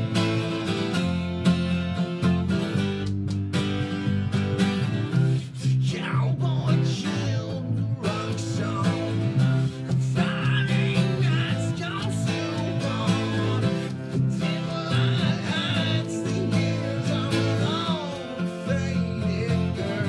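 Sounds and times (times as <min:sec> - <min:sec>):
acoustic guitar strumming: 0:00.0 - 0:20.0
bass guitar notes: 0:00.0 - 0:20.0
man singing: 0:05.4 - 0:20.0.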